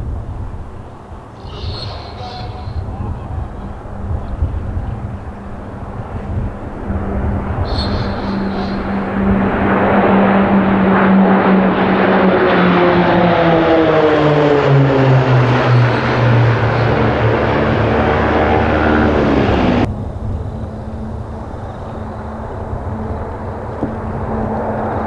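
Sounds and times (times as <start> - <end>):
propeller planes flying past: 0.0 - 25.0.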